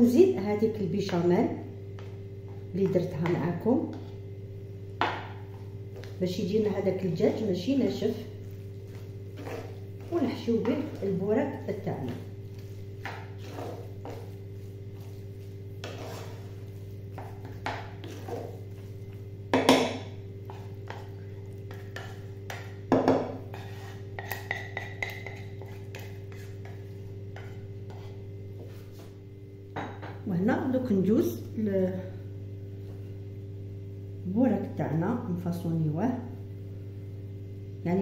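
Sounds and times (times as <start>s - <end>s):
steady low hum: 0.0s - 38.0s
spoon scraping a frying pan: 8.0s - 29.1s
spoon knocking on pan: 17.1s - 18.5s, 19.5s - 21.1s, 21.7s - 23.4s, 24.2s - 26.1s.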